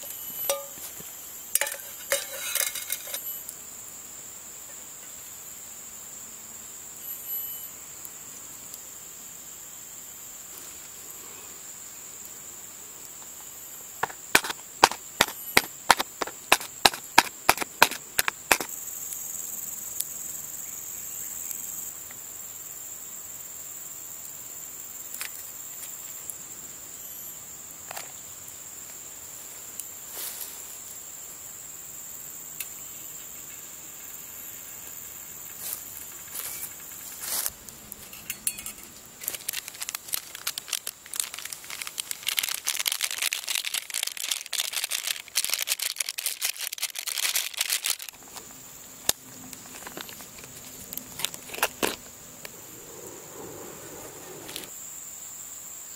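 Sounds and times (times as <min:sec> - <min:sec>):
high insect drone: 0:00.0 - 0:55.9
paper sachet crinkling: 0:39.2 - 0:48.4.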